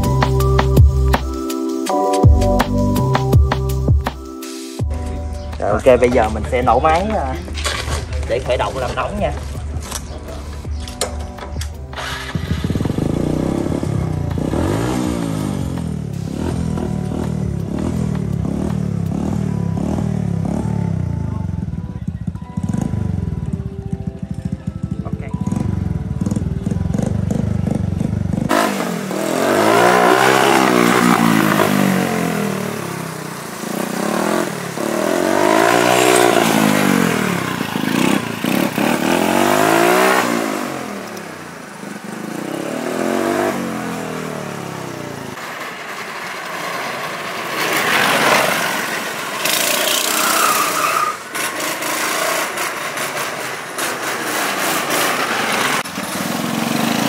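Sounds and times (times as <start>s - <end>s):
go-kart engine revving: 11.9s - 23.5s, 24.8s - 57.0s.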